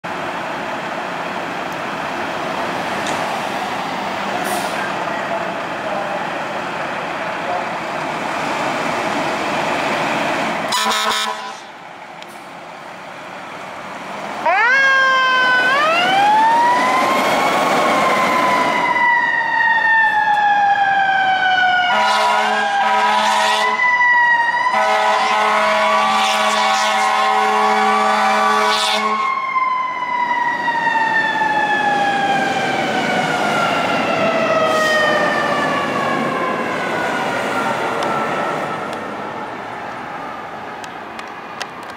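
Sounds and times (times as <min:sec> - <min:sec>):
fire engine siren wailing: 0:00.4 - 0:11.9, 0:12.7 - 0:41.9
air horn blasts: 0:10.7 - 0:11.7, 0:21.9 - 0:23.8, 0:24.7 - 0:29.2.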